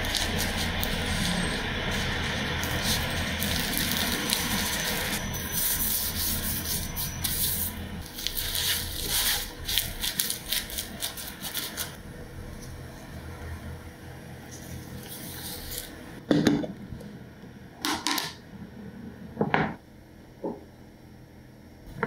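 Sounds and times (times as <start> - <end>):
dry seaweed crinkling: 0.0 - 5.2.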